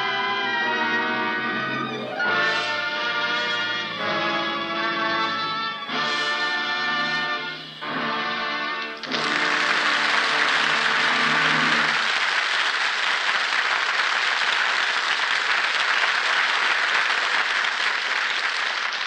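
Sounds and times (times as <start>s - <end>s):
orchestral music: 0.0s - 12.1s
audience applauding: 1.6s - 19.0s.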